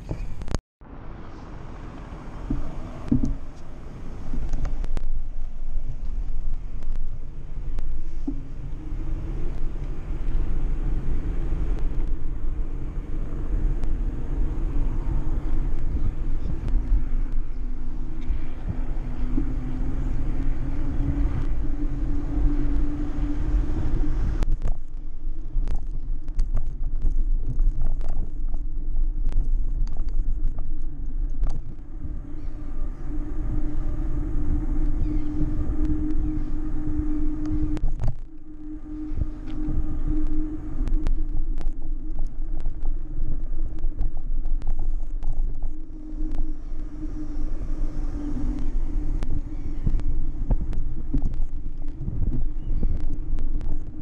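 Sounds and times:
hum rising in pitch: 0:00.0 - 0:54.0
wind and road noise: 0:00.0 - 0:54.0
sharp clicks and rattles: 0:24.3 - 0:31.9, 0:39.4 - 0:46.6.

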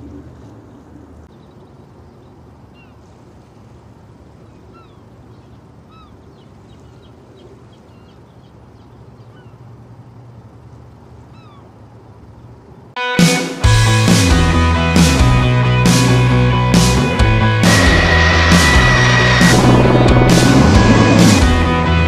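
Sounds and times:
gulls calling: 0:04.6 - 0:09.8, 0:11.2 - 0:11.8
low rumble: 0:14.7 - 0:22.0.

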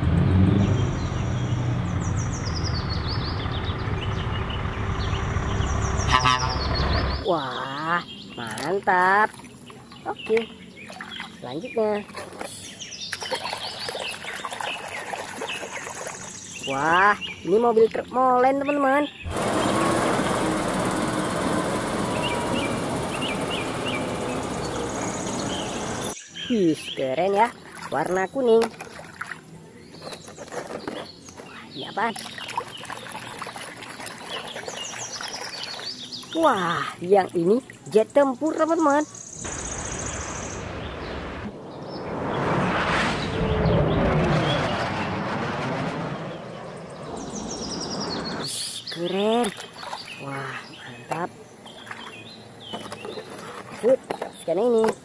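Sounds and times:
diesel truck engine rumbling: 0:00.0 - 0:07.3, 0:19.3 - 0:26.2
birds chirping: 0:00.4 - 0:42.5, 0:46.1 - 0:55.0.

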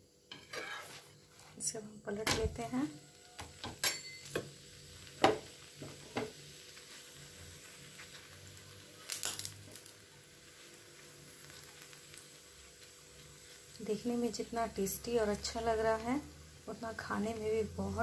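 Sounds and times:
flatbread sizzling on a griddle: 0:00.0 - 0:18.0.

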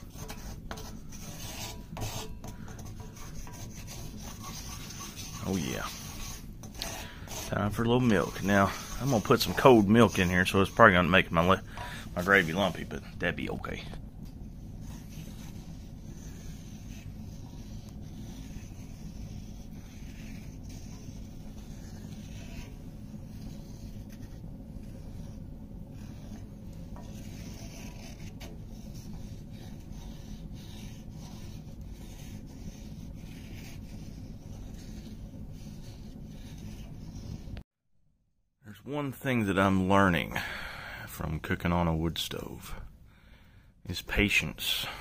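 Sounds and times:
wooden spoon scraping skillet: 0:00.0 - 0:13.8.

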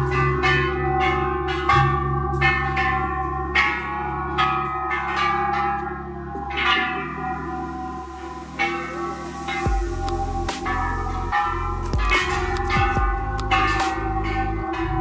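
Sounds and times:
temple bells ringing: 0:00.0 - 0:15.0.

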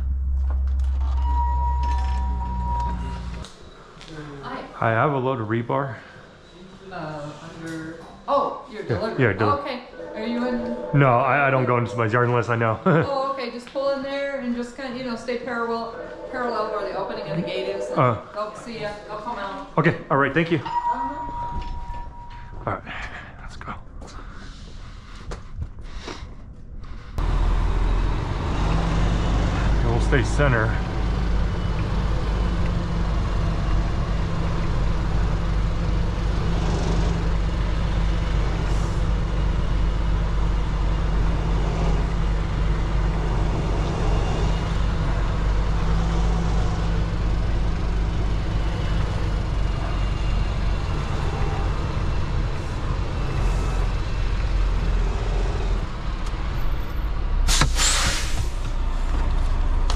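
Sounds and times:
diesel truck engine running: 0:27.2 - 0:59.9
air brake hiss: 0:57.5 - 0:58.7.

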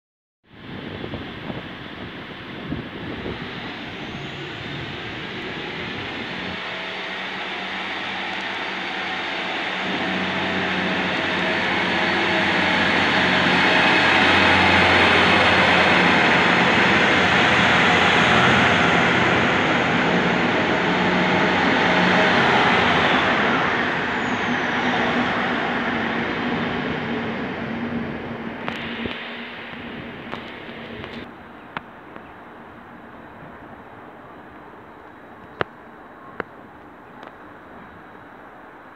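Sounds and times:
diesel train passing: 0:00.6 - 0:38.9.

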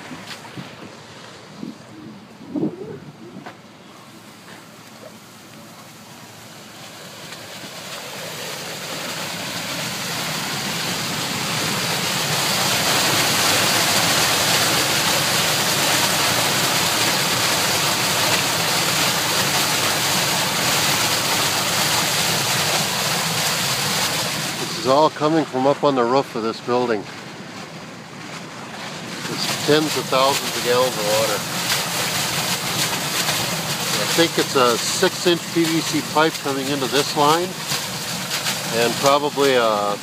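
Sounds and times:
water rushing into drain: 0:05.1 - 0:40.0.

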